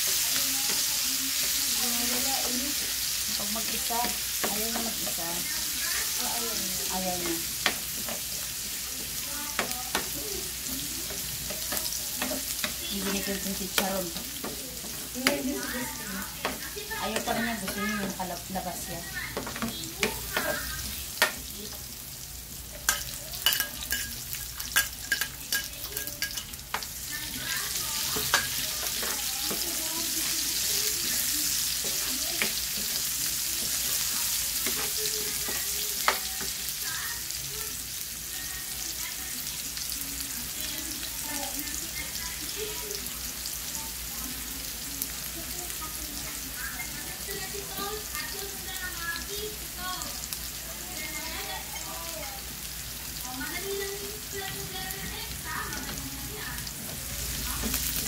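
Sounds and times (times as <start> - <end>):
garlic and onions sizzling in oil: 0.0 - 58.0
spatula scraping a pan: 22.7 - 36.8.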